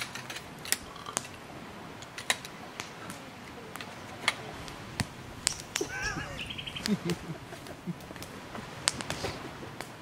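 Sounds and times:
camp chair poles clicking: 0:00.0 - 0:01.4, 0:02.0 - 0:03.0, 0:03.7 - 0:06.2.

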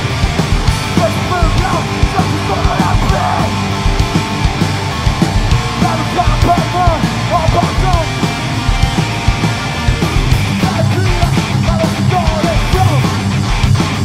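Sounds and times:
distorted electric guitars: 0:00.0 - 0:14.0
fast hard-hit drums: 0:00.0 - 0:14.0
singer screaming: 0:00.9 - 0:03.8, 0:05.7 - 0:08.3.

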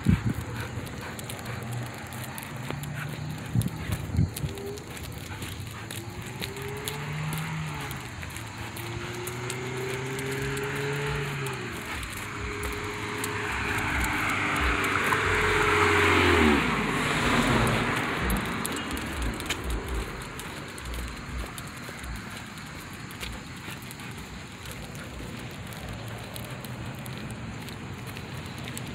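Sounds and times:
vehicle driving past: 0:05.9 - 0:22.3.

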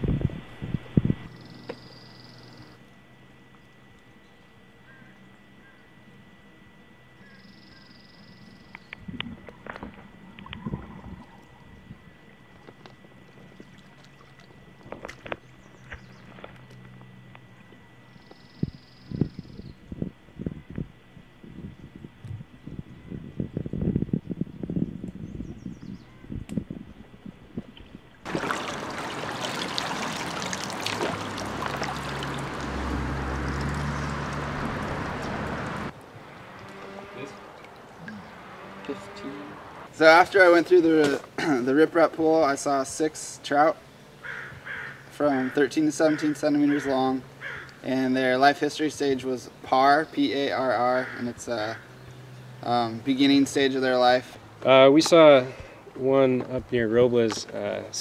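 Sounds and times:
low hum: 0:00.0 - 0:45.2
faint steady high tone: 0:01.3 - 0:02.8, 0:07.2 - 0:09.2
muffled water sloshing underwater: 0:08.9 - 0:16.8, 0:26.9 - 0:36.6
creek water running and splashing: 0:28.2 - 0:39.0.

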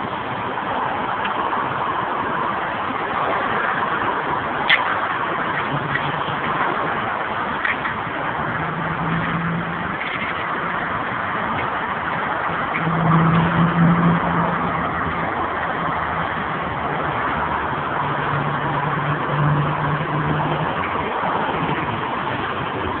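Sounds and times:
motor vehicle running: 0:03.3 - 0:23.0.

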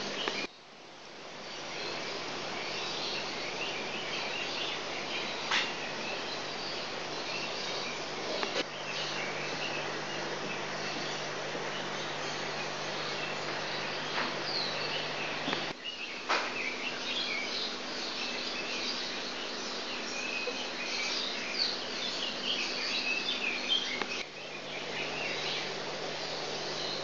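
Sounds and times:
aquarium equipment hum and hiss: 0:00.0 - 0:27.0
small birds chirping: 0:00.0 - 0:27.0.

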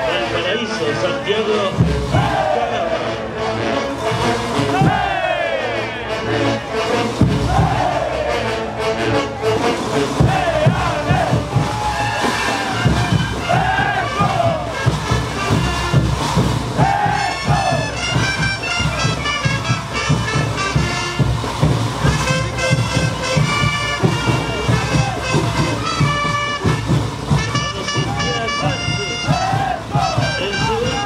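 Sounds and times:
voices: 0:00.0 - 0:03.4, 0:04.7 - 0:16.0, 0:16.8 - 0:21.2, 0:27.4 - 0:31.0
brass band playing: 0:00.0 - 0:31.0
driving drum beat: 0:01.7 - 0:02.6, 0:04.2 - 0:05.4, 0:07.0 - 0:08.5, 0:09.4 - 0:31.0.

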